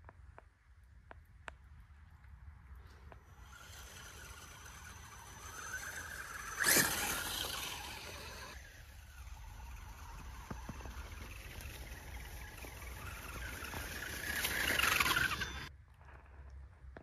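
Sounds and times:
tyres on snowy ground: 0.0s - 17.0s
high electric motor whine: 3.4s - 15.7s.

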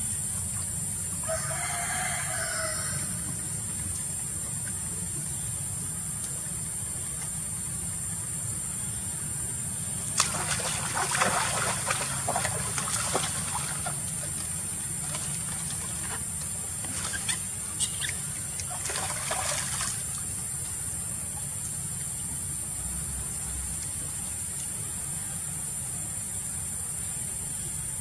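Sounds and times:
monkeys splashing in water: 10.1s - 20.4s.

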